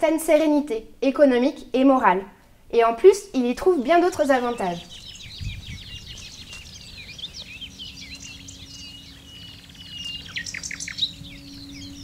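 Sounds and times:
faint steady hum: 3.6 - 12.0
birds chirping and singing: 4.0 - 12.0.

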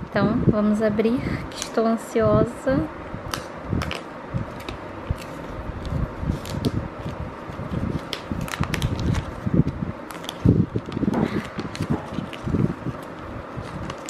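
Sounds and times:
paper tearing and crinkling: 3.9 - 9.5, 10.1 - 14.0.

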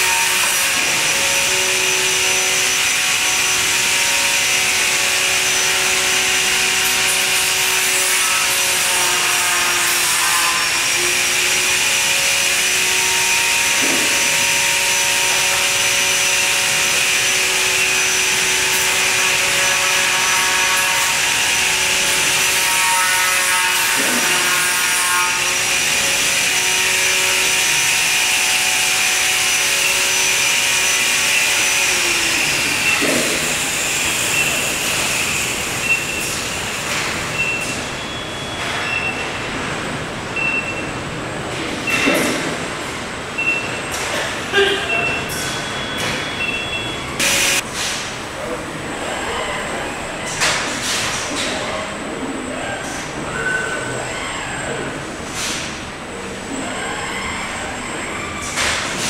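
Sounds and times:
whirring machinery hum: 0.0 - 59.0.

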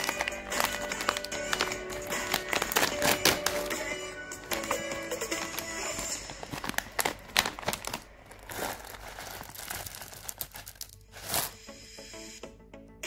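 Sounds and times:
candies pouring into palm: 0.0 - 11.6
plastic pouch crinkling: 0.0 - 11.6.

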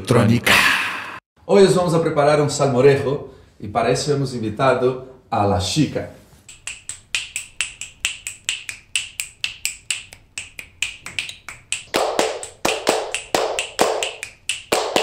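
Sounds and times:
finger snapping: 6.5 - 12.0
hand clapping: 6.5 - 15.0.

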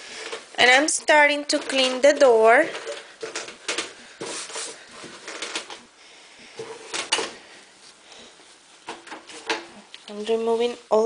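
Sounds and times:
paper towel wiping a door: 4.0 - 5.2.

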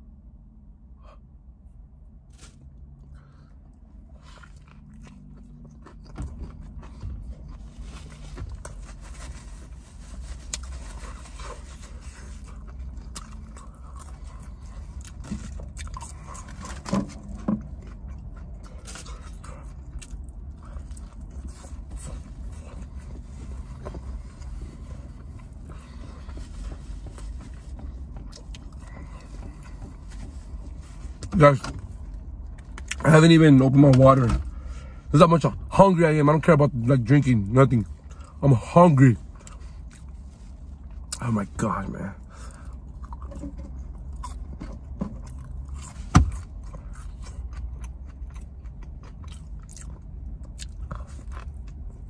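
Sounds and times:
low steady rumble: 0.0 - 52.0
chewing crispy food: 2.3 - 33.1, 42.2 - 52.0.

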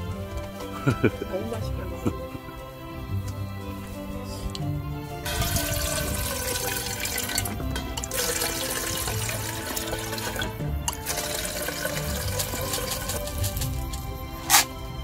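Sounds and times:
background music: 0.0 - 15.0
water pouring into kettle: 5.3 - 14.0.

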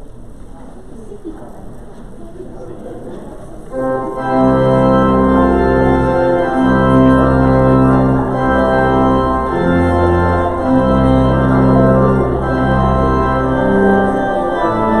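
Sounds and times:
organ chords: 3.7 - 15.0.

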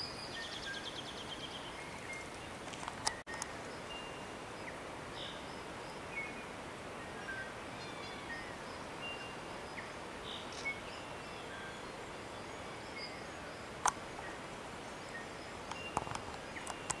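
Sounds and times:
steady background hiss: 0.0 - 17.0
sharp clicks: 2.7 - 3.5, 15.7 - 17.0.

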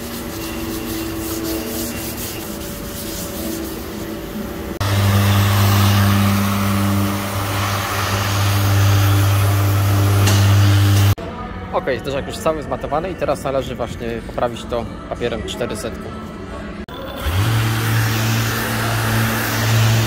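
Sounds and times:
orbital sander running: 4.8 - 11.2, 17.2 - 20.0.

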